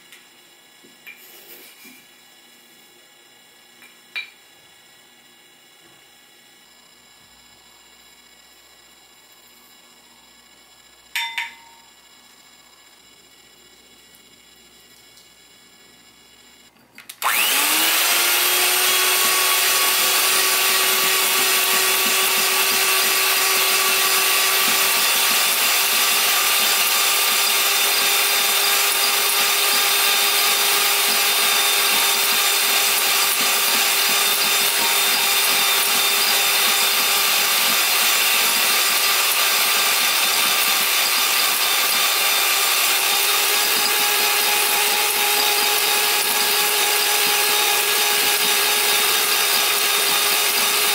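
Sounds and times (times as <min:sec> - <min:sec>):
electric hand mixer running: 0:17.2 - 0:50.9.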